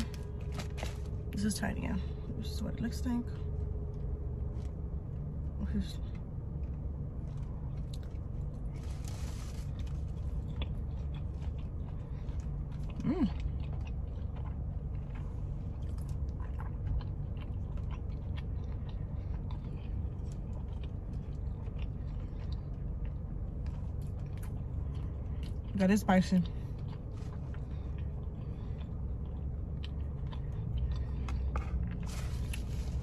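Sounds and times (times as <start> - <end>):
steady low hum: 0.0 - 33.0
person chewing with wet clicks: 9.8 - 33.0.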